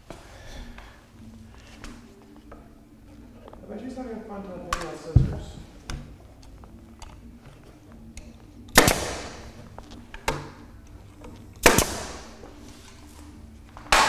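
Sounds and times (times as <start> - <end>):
nail gun firing: 8.7 - 9.5, 11.6 - 12.4.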